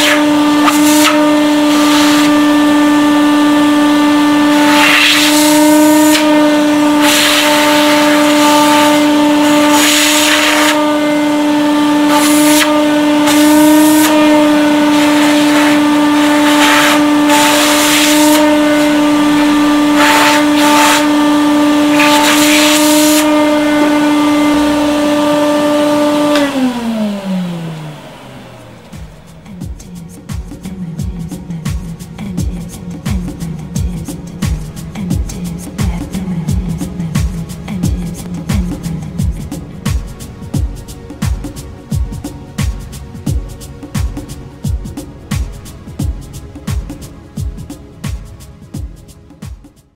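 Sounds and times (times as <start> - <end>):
vacuum cleaner motor whine: 0.0 - 29.8
vacuum suction hissing: 0.0 - 49.3.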